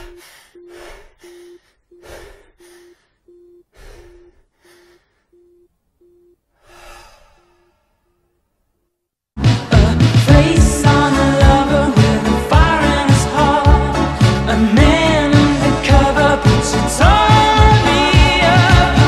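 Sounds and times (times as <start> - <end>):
pulsing electronic beep: 0.0 - 4.4
breathy gasps: 0.0 - 5.4, 6.5 - 8.1.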